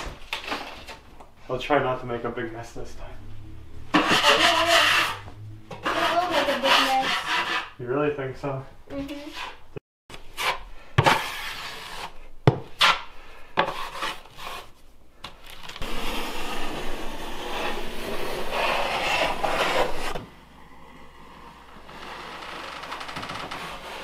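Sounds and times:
drywall knife scraping compound: 3.9s - 5.2s, 5.8s - 7.8s, 9.0s - 14.8s, 15.8s - 22.4s, 23.4s - 24.0s.

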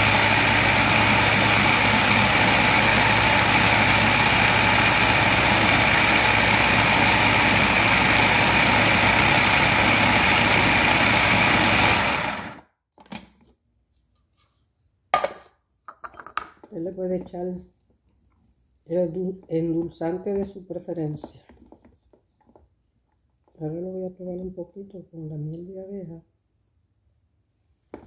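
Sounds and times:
food processor motor running: 0.0s - 12.6s.

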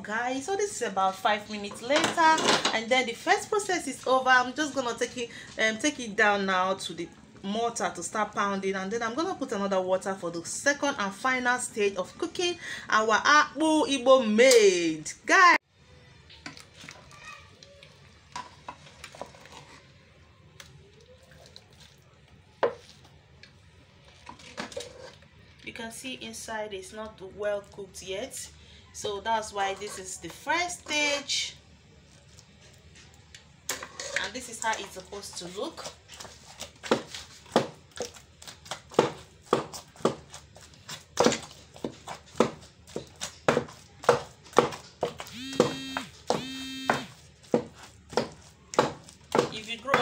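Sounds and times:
metal spoon scraping in pot: 18.4s - 20.0s, 24.2s - 25.3s, 33.7s - 35.0s
pestle pounding in a mortar: 36.2s - 50.0s.

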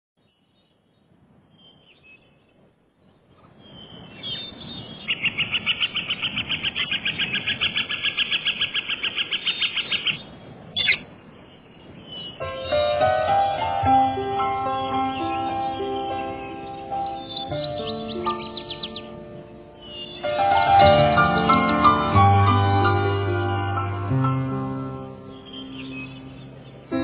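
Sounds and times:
faint high bird calls: 0.2s - 13.0s, 14.7s - 19.1s, 19.8s - 20.4s
rapid bird chirps: 3.4s - 12.8s, 14.8s - 19.1s
music: 12.4s - 27.0s.

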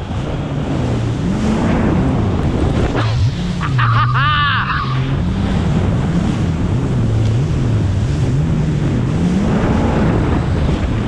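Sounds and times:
wind buffeting microphone: 0.0s - 3.8s, 4.8s - 11.0s
jet ski engine running: 0.0s - 11.0s.

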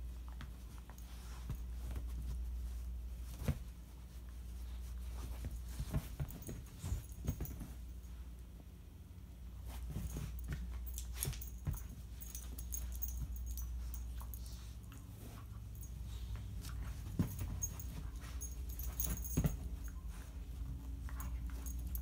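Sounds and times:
puppy shaking plush toy: 5.1s - 8.0s, 9.6s - 22.0s.

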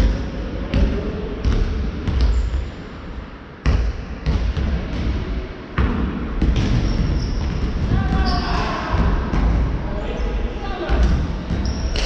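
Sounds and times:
basketballs bouncing on wooden floor: 3.6s - 5.2s, 5.8s - 9.8s, 10.8s - 12.0s.

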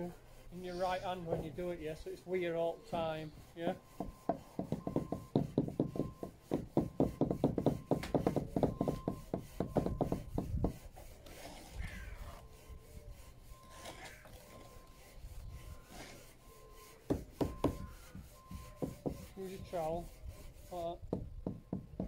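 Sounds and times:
trowels chopping and scraping mortar: 4.0s - 11.8s.

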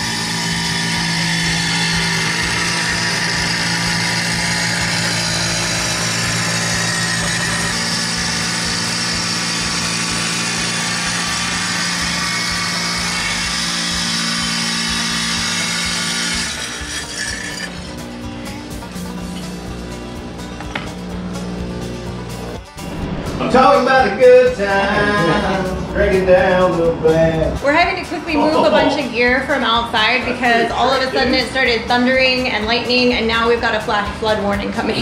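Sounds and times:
wet tile saw cutting: 0.0s - 18.0s.

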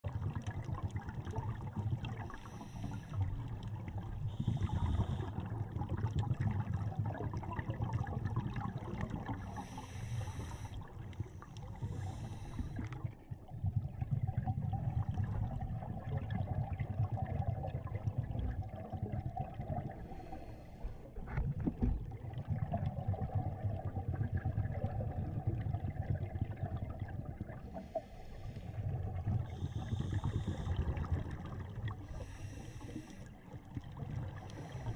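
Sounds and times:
low rumble of moving water: 0.0s - 34.9s
diver regulator breathing bubbles: 1.4s - 13.2s, 18.9s - 21.9s, 27.3s - 34.9s.

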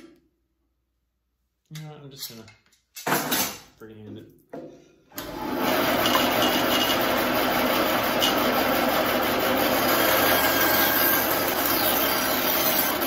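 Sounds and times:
bandsaw cutting wood: 5.2s - 13.0s.

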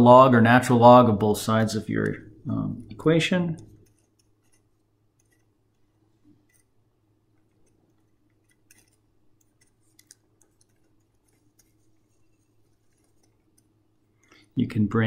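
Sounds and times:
low steady hum: 0.0s - 15.0s
pen writing on paper: 3.7s - 5.5s.

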